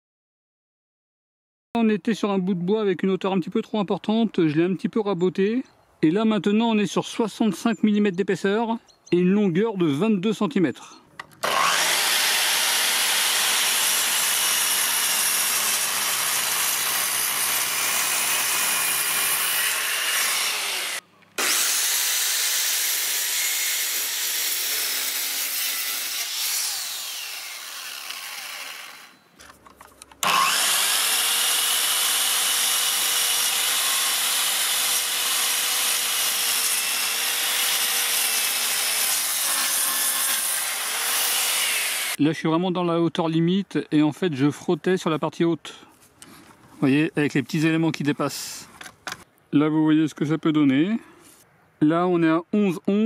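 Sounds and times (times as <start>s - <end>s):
mitre saw cutting wood: 11.4s - 29.2s, 30.2s - 42.2s.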